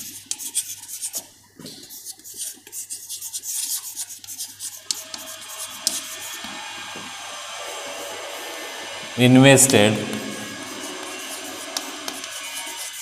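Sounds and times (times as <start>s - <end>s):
chalk scratching on blackboard: 0.0s - 6.5s, 9.8s - 13.0s.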